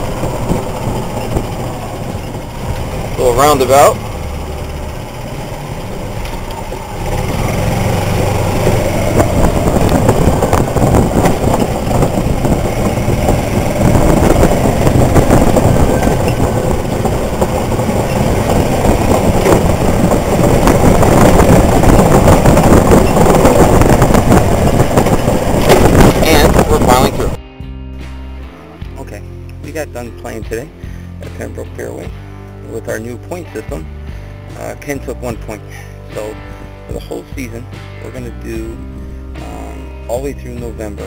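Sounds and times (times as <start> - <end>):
wheels rattling on wooden boardwalk: 0.0 - 27.4.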